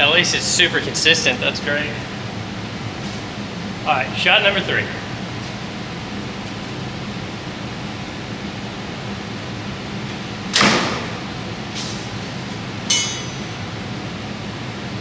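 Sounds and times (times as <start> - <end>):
bow shot sharp crack: 10.5 - 11.2.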